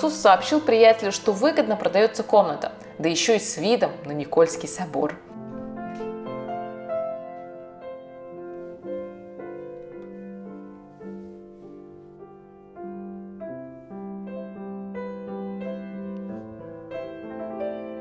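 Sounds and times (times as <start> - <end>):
slow piano music: 0.0 - 18.0.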